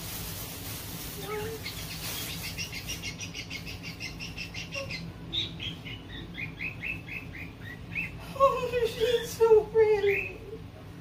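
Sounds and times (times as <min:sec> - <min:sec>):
plastic bag rustling: 0:00.0 - 0:03.5
bird chirping: 0:01.3 - 0:10.6.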